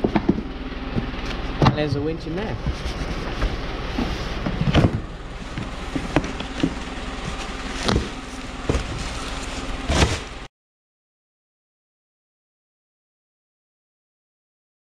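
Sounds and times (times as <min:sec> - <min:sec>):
short knocks and scrapes: 0:00.0 - 0:10.5
steady rumble: 0:00.0 - 0:10.5
cardboard boxes being handled: 0:02.6 - 0:10.5.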